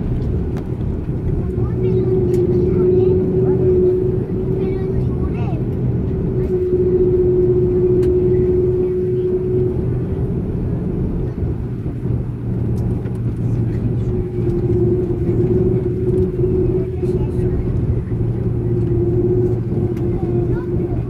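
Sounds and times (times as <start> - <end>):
aircraft engine hum: 0.0 - 21.0
low rumble: 0.0 - 21.0
steady tone: 0.0 - 21.0.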